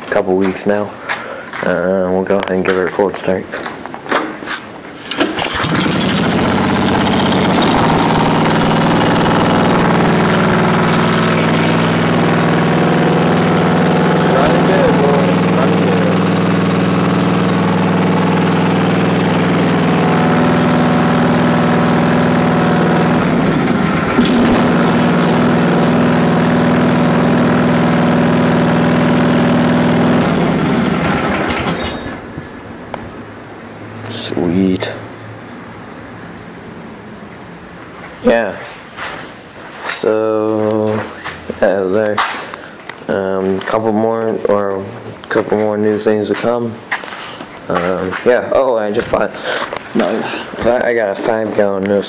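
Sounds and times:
lawn mower engine starting and running: 4.7s - 33.7s, 43.2s - 52.0s.

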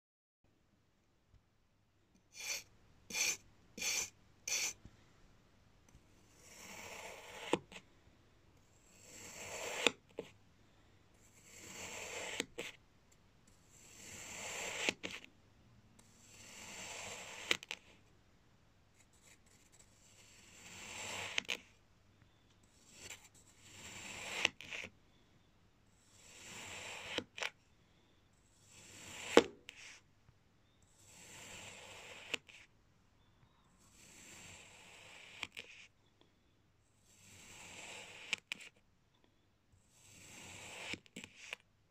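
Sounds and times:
knife cutting through sand: 2.4s - 4.8s, 9.1s - 10.0s, 13.9s - 15.2s, 20.1s - 21.6s, 22.9s - 24.9s.

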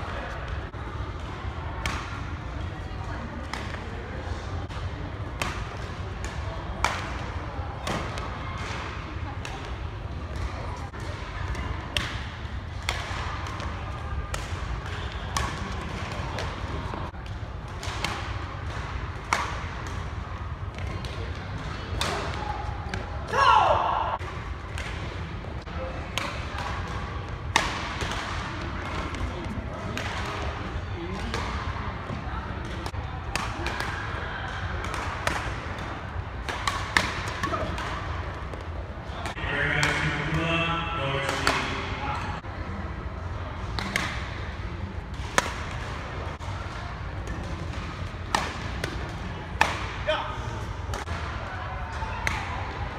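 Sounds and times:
low hum of hall: 0.0s - 52.9s
racket hitting shuttlecock: 34.8s - 38.6s, 47.2s - 50.0s
hum of voices: 38.9s - 45.2s.

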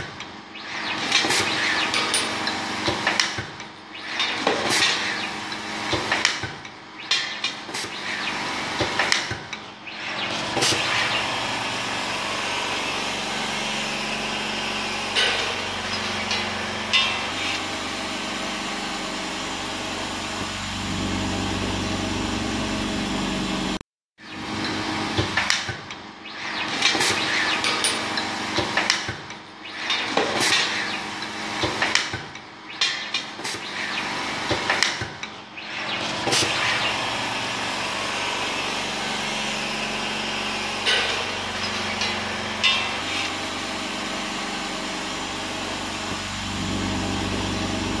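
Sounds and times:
machine clicks and clacks: 0.0s - 11.4s, 15.0s - 17.7s, 24.4s - 37.7s, 38.8s - 45.0s
labeling machine humming: 7.9s - 23.8s, 35.6s - 48.0s.

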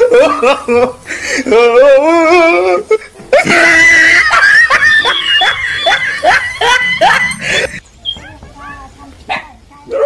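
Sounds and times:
person laughing hard: 0.0s - 7.8s.

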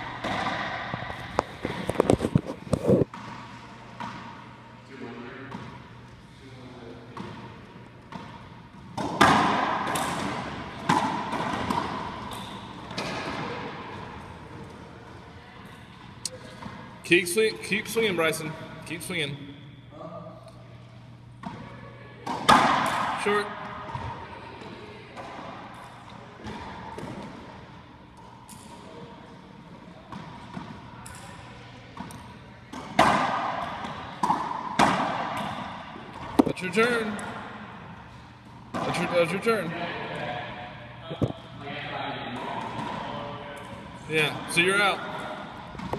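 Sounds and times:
racquetball hits echoing: 0.0s - 1.8s, 3.1s - 4.5s, 7.1s - 14.3s, 21.4s - 25.8s, 26.4s - 27.8s, 32.7s - 39.3s.

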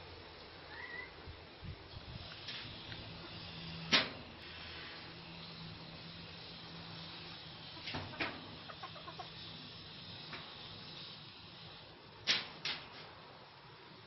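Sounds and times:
soft clucks: 7.8s - 9.4s.

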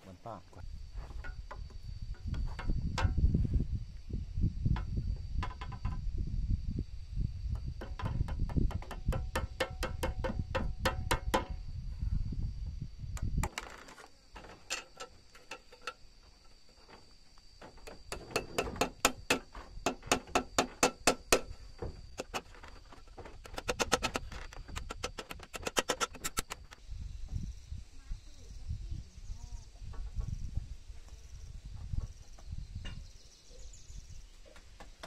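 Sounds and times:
small hammer tapping nails: 7.8s - 11.6s.

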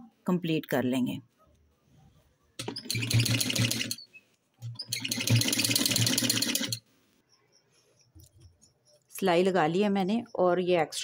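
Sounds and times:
sewing machine stitching: 2.6s - 4.0s, 4.6s - 6.8s.

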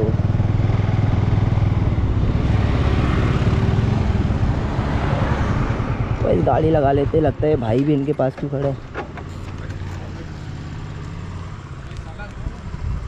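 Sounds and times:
motorcycle engine pulsing drone: 0.0s - 7.6s.

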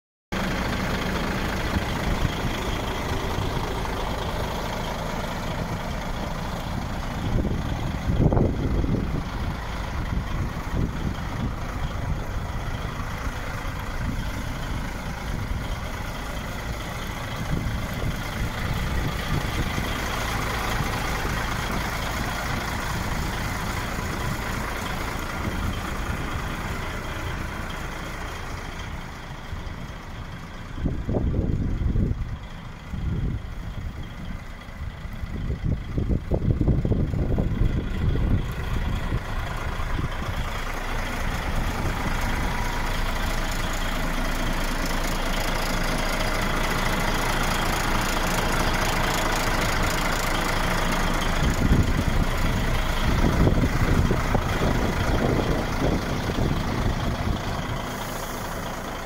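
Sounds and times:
diesel truck engine idling: 0.3s - 59.0s.

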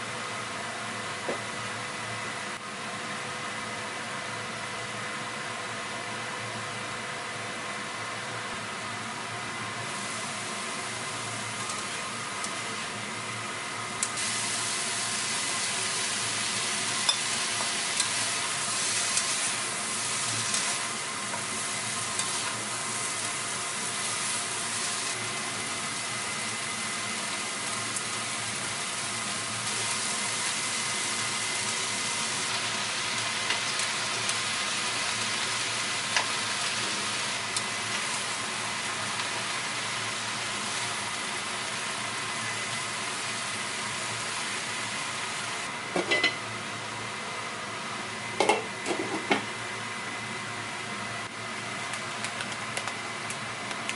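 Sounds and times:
vegetables sizzling in a pan: 8.7s - 51.0s.

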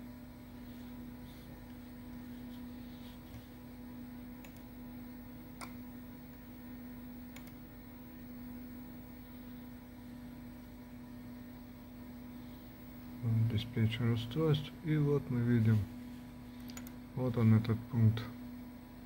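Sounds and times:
low electrical hum: 0.0s - 19.0s
computer mouse clicks: 4.4s - 4.7s, 7.3s - 7.6s, 16.6s - 17.0s.

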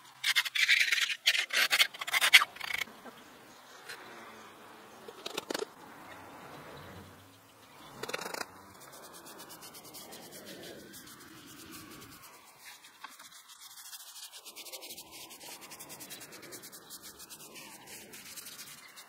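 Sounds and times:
brush scrubbing wet cement: 8.7s - 19.0s.

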